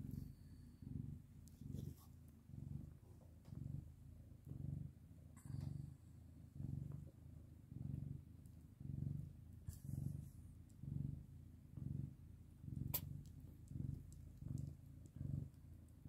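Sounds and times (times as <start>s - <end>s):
cat purring: 0.0s - 16.0s.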